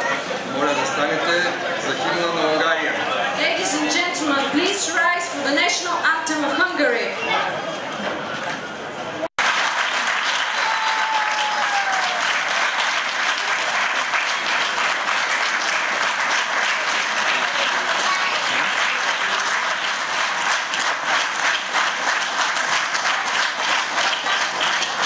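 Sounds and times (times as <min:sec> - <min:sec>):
audience applauding: 0:09.4 - 0:25.0.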